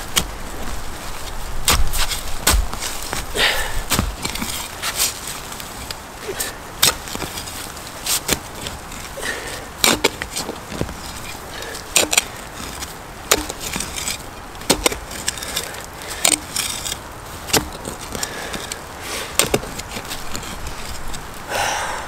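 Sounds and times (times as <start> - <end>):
dirt scraping and crunching: 0.0 - 21.5
shovel blade chopping into soil: 1.6 - 5.2, 9.8 - 10.4, 11.6 - 17.9.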